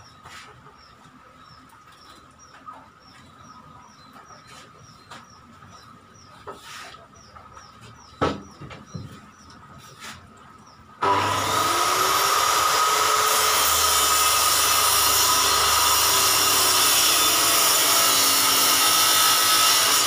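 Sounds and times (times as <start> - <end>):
wooden knocks: 7.8 - 9.3.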